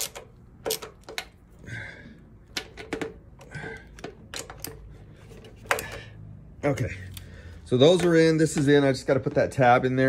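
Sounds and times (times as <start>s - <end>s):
ratchet metal clicks: 0.0s - 1.4s.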